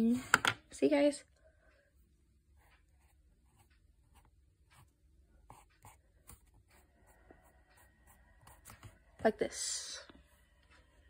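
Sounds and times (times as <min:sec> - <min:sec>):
pencil shading strokes on paper: 0:02.6 - 0:10.5.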